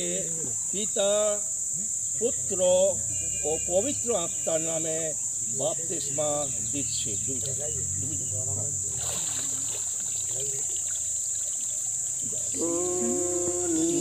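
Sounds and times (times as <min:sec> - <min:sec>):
water splashing and running off: 0:08.4 - 0:14.0
high-pitched insect drone: 0:09.6 - 0:14.0
voice holding a long note: 0:12.5 - 0:14.0.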